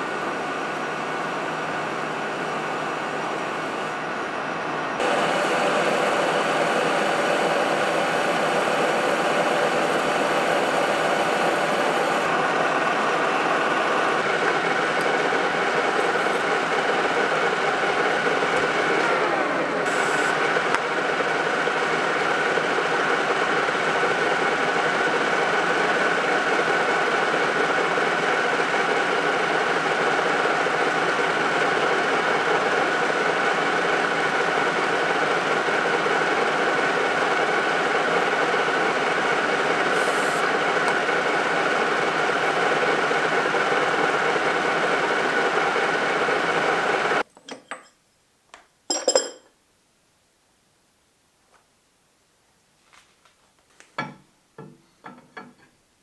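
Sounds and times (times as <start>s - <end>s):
gearing whine: 0.0s - 24.2s
metal lathe drilling: 5.0s - 47.2s.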